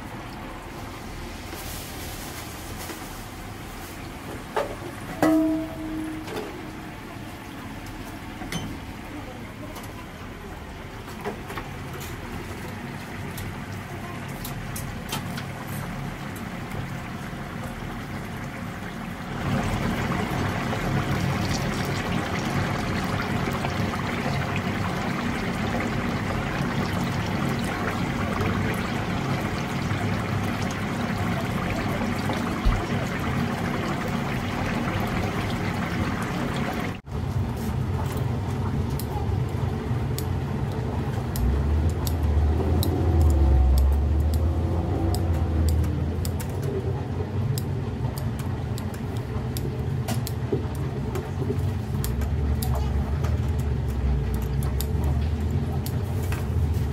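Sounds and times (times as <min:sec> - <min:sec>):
chicken sizzling in oil: 0:12.3 - 0:37.1.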